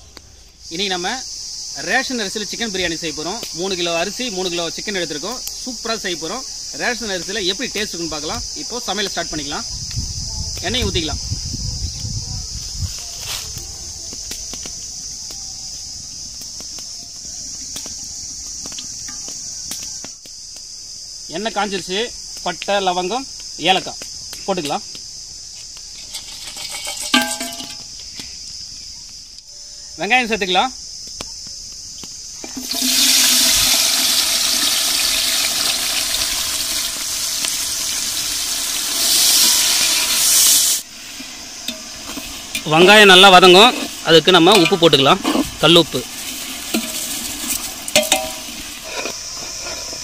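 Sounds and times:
insect chorus: 0:00.0 - 0:50.0
onions sizzling in hot oil: 0:00.7 - 0:29.0, 0:31.6 - 0:50.0
ladle stirring in pot: 0:26.0 - 0:27.8, 0:43.5 - 0:50.0
oil pouring into a pot: 0:32.5 - 0:40.2, 0:46.0 - 0:48.9.

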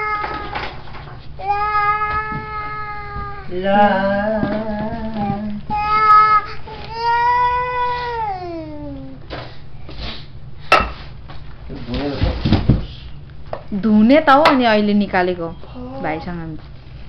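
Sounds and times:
toddler singing wordless notes: 0:01.4 - 0:09.0.

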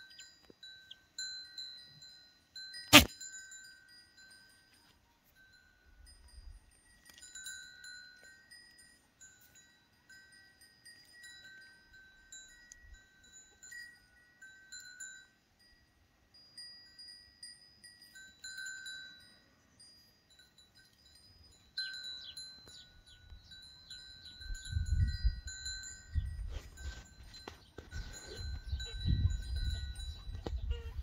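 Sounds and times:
small bells tinkling: 0:00.0 - 0:31.0
short chirps: 0:02.9 - 0:03.1.

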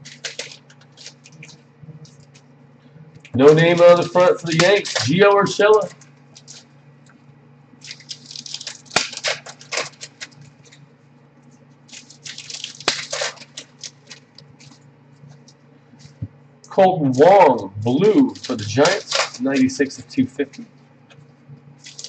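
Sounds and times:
cards clicking and rustling: 0:00.0 - 0:01.6, 0:03.4 - 0:06.7, 0:18.0 - 0:19.8
faint low hum: 0:00.0 - 0:22.0.

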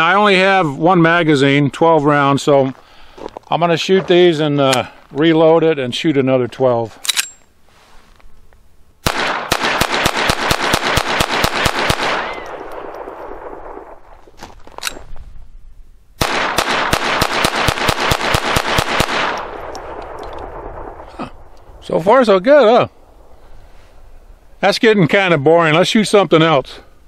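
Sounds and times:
pistol firing fast strings: 0:09.0 - 0:13.2, 0:16.2 - 0:20.6.

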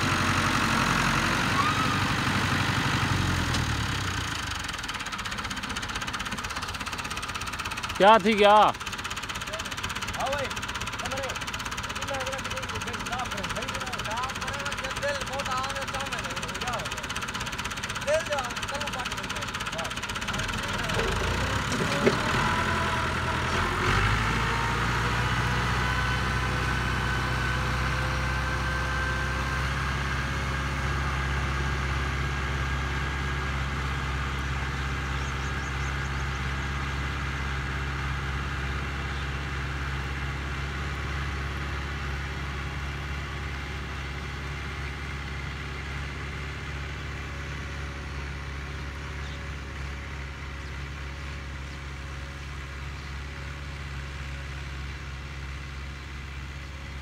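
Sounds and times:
diesel tractor engine: 0:00.0 - 0:57.0.

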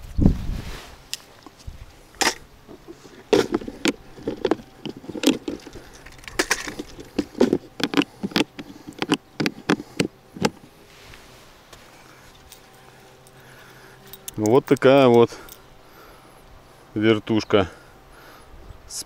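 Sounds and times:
lid latching shut: 0:02.2 - 0:10.7
plastic tackle box clattering: 0:02.9 - 0:10.6.

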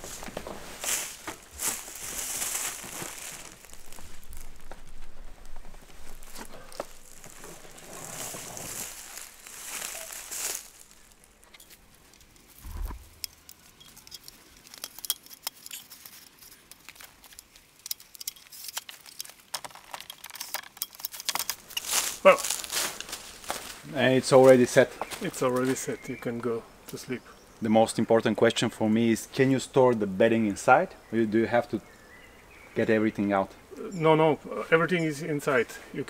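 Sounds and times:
tent fabric rustling: 0:00.0 - 0:13.2, 0:21.6 - 0:23.9
dull thump: 0:12.6 - 0:13.2.

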